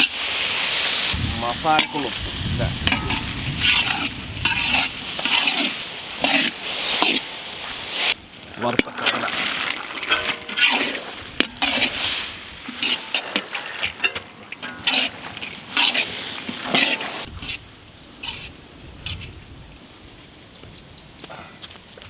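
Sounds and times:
food frying in oil: 0.0 - 17.5
spatula scraping a wok: 2.8 - 8.2, 8.8 - 17.6, 18.2 - 19.3.

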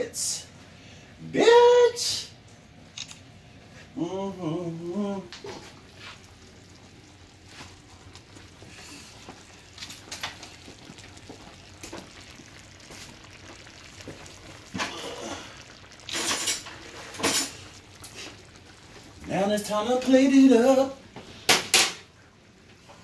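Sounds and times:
sauce simmering with pops: 5.3 - 21.8.

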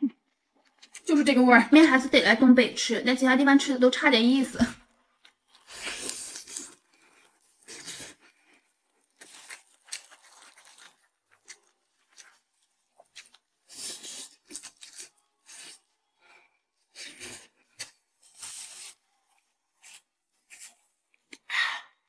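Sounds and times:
chewing and slurping noodles: 5.1 - 21.3
sip through a drinking straw: 16.9 - 19.1.

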